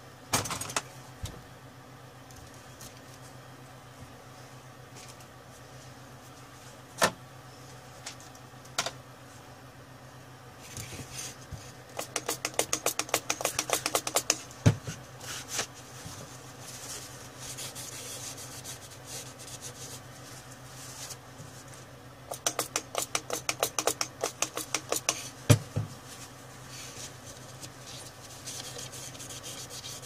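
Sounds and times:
steady low hum: 0.0 - 30.0
sharp clicks and knocks: 12.0 - 14.4, 22.3 - 25.2.

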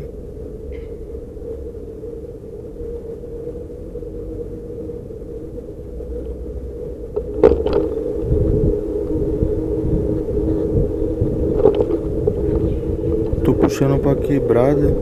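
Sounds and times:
bicycle road rumble: 0.0 - 15.0
steady hum: 0.0 - 15.0
wind: 0.0 - 15.0.

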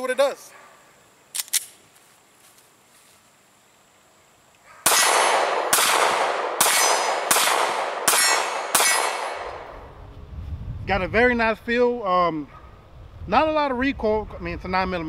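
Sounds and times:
sharp clicks: 1.3 - 1.8
pistol shots echoing: 4.8 - 9.7.

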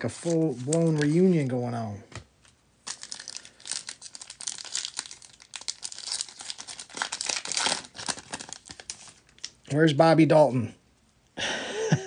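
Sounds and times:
foil wrapper tearing and crinkling: 0.1 - 1.4, 2.8 - 9.5.

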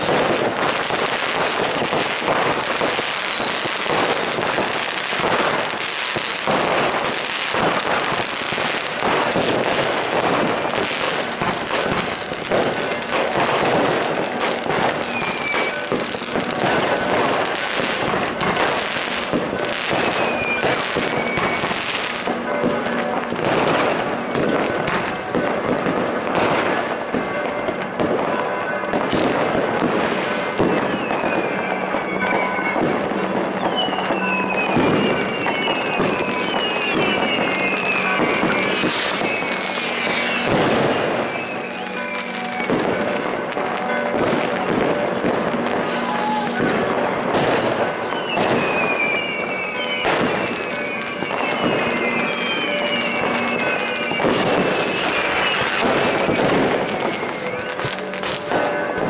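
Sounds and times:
falling firework whistles: 0.0 - 22.4, 33.5 - 42.8, 45.2 - 59.0
fireworks bangs and crackling: 0.0 - 59.0.

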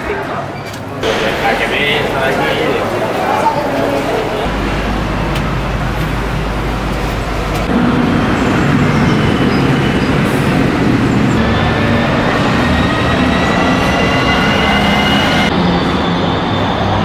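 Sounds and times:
city street traffic noise: 0.0 - 17.0
low engine hum of vehicles: 4.3 - 12.4.

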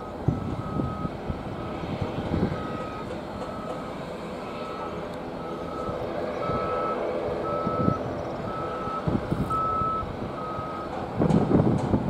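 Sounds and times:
reversing alarm beeping: 0.0 - 1.8, 2.4 - 3.9, 4.5 - 11.0
engine drone: 0.0 - 12.0.

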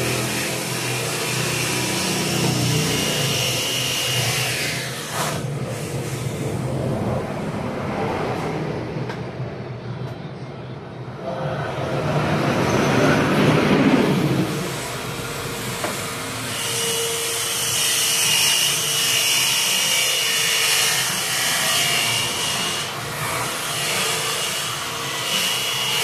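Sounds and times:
vehicle traffic rumble: 5.4 - 16.4.

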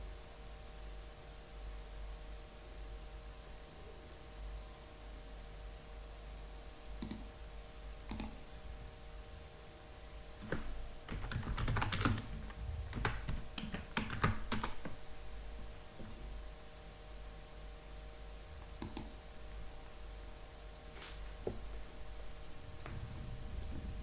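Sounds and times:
typing on computer keyboard: 8.1 - 8.4, 10.4 - 15.0, 18.8 - 19.2.

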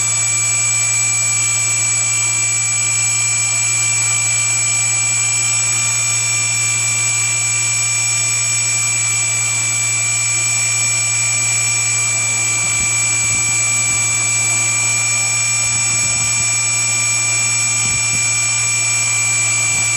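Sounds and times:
electric motor whining: 8.6 - 19.9.

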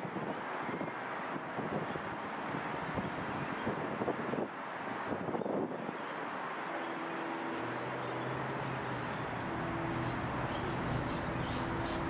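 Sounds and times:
electric train approaching: 6.7 - 12.0
higher steady tone: 6.7 - 12.0.

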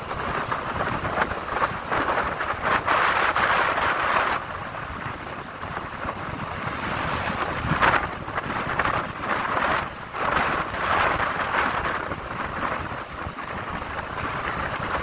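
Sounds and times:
road and engine noise: 0.0 - 15.0
wind buffeting microphone: 0.0 - 15.0
truck passing whoosh: 0.8 - 12.0.

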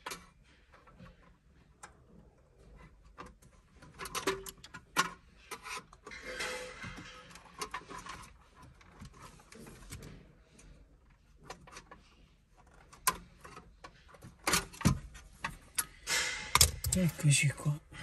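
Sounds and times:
screwdriver clicks and scrapes on metal: 11.4 - 17.2.

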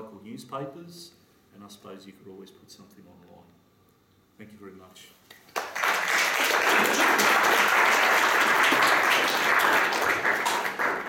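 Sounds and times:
audience applauding: 5.5 - 11.0.

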